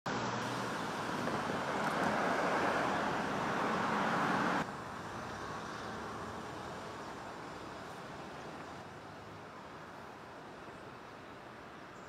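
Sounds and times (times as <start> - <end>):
road traffic hiss: 0.1 - 12.0.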